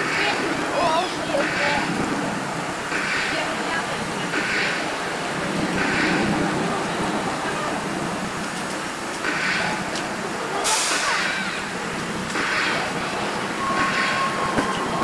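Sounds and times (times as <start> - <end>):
roller coaster rumble and clatter: 0.0 - 15.0
sudden hiss: 9.1 - 15.0.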